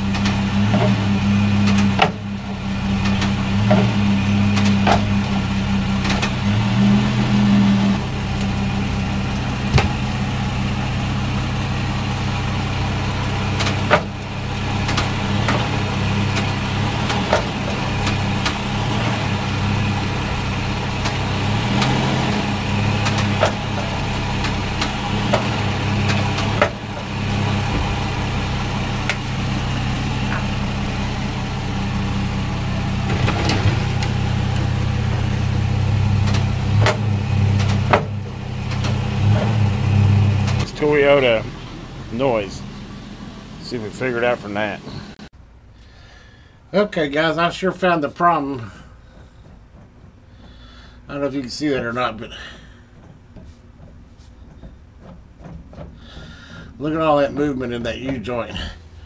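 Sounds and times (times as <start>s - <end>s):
sharp clicks and knocks: 0.0s - 6.5s, 13.5s - 18.8s, 21.0s - 28.2s, 33.0s - 40.8s, 48.6s - 58.4s
low drivetrain hum: 0.0s - 59.0s.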